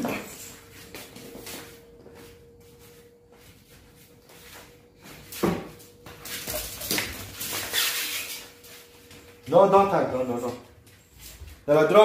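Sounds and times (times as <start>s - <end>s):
dog scuffling on tiled floor: 0.0s - 9.3s.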